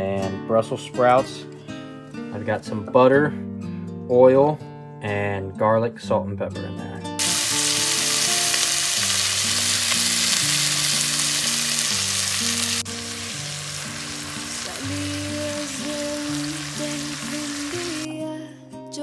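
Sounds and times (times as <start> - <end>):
steaks sizzling: 7.2 - 18.1.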